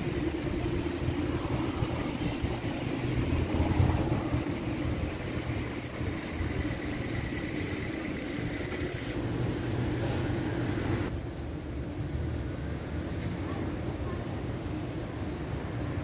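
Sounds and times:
vehicle engines humming: 0.0 - 11.1.

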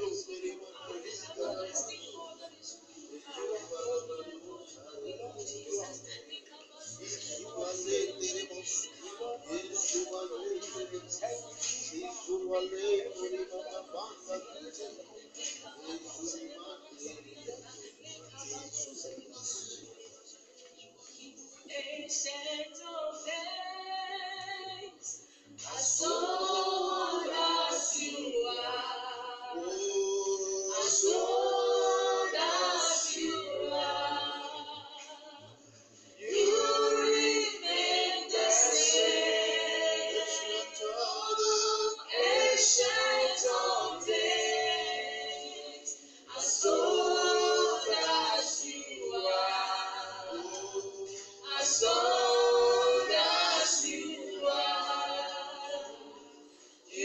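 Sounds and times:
group of voices singing: 21.6 - 57.0.

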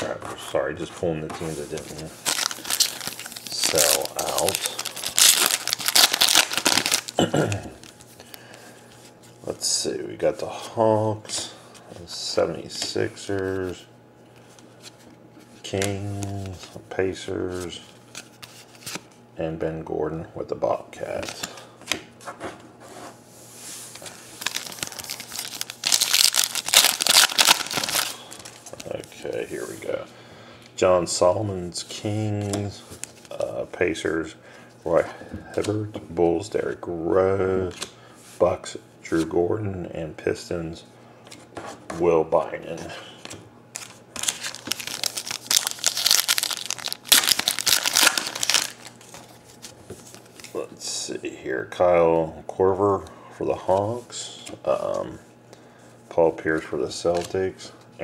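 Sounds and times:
plastic wrapper crinkling and tearing: 2.2 - 8.0, 24.3 - 29.0, 43.7 - 49.4.

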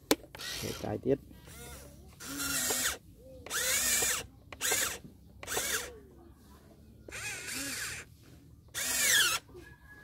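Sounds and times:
electric motors whining: 0.3 - 5.9, 7.1 - 8.1, 8.7 - 9.6.

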